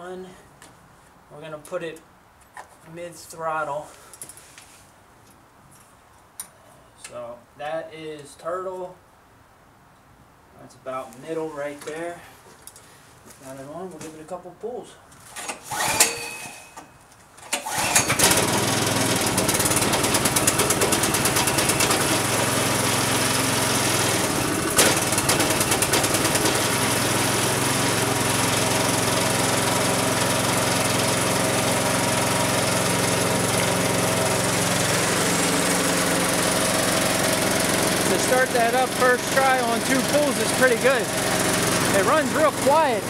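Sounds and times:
recoil starter pull: 15.4s - 16.6s, 17.4s - 22.2s, 24.7s - 26.7s
small engine running steadily: 17.6s - 43.0s.

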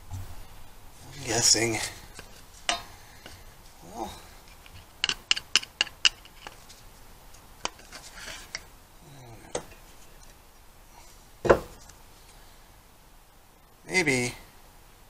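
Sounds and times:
screwdriver clicking on metal: 4.5s - 6.6s.

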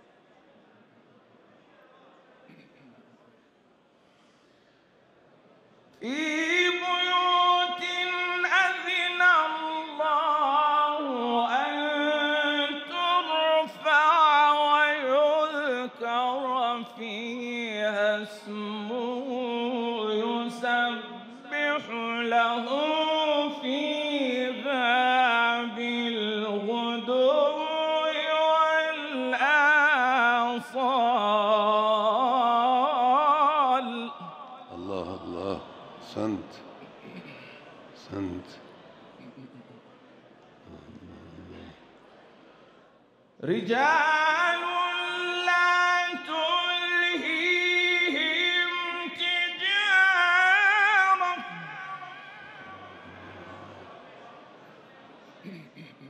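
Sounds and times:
man chanting recitation: 6.0s - 37.2s, 40.7s - 41.8s, 43.4s - 54.1s.

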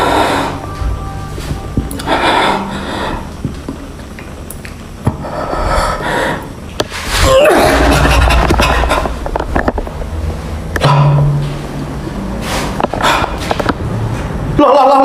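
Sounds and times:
heavy breathing: 0.0s - 0.7s, 2.0s - 3.4s, 5.1s - 7.2s, 12.4s - 13.6s.

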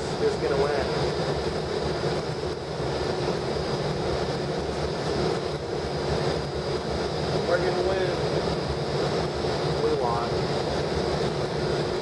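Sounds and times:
high-pitched whine: 0.0s - 12.0s.

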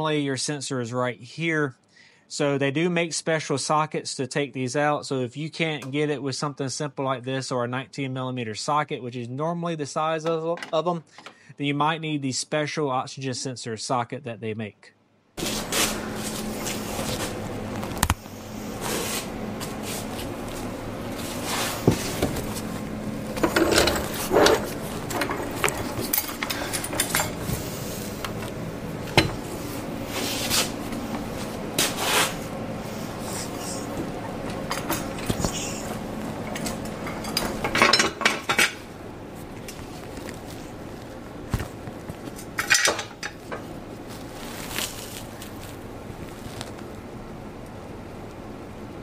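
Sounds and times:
steady low hum: 15.4s - 49.0s
metal tools clinking and rattling: 23.3s - 27.5s, 34.5s - 35.8s, 36.4s - 38.8s, 42.4s - 43.7s.

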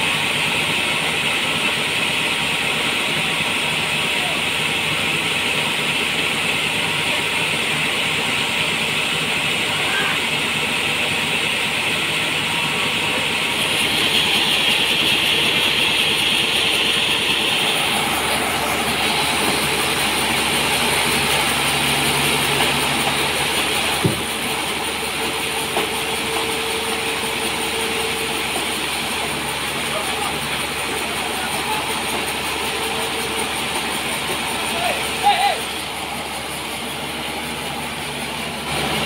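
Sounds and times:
band saw cutting log: 4.5s - 39.0s.

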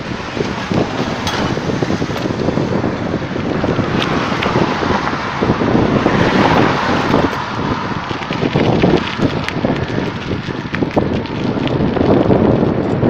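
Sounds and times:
wind buffeting a microphone: 0.0s - 13.0s.

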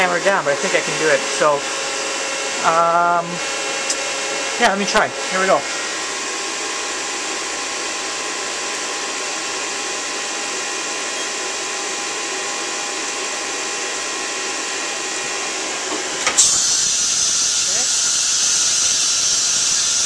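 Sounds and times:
compressed air hissing: 16.4s - 20.0s.

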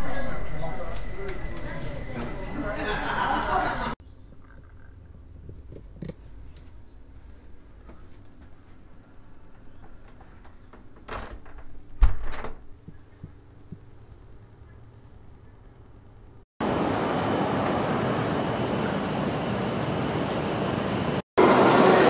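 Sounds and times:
door knocks and thump: 11.0s - 12.7s.

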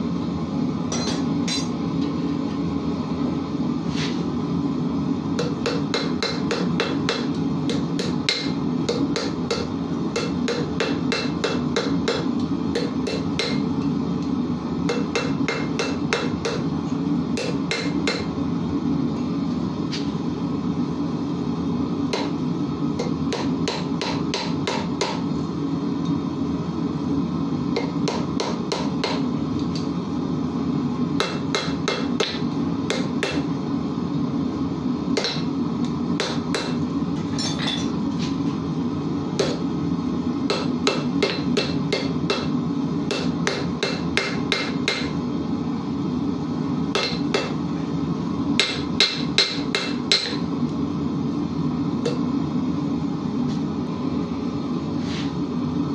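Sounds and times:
steady low hum: 0.0s - 55.9s
hammer striking iron on anvil: 0.9s - 1.8s, 5.4s - 13.6s, 14.9s - 16.7s, 17.4s - 18.3s, 22.1s - 22.3s, 23.0s - 25.2s, 27.8s - 29.2s, 31.2s - 33.4s, 35.2s - 35.5s, 36.2s - 36.8s, 40.5s - 42.5s, 43.1s - 45.2s, 46.9s - 47.6s, 48.6s - 50.5s.

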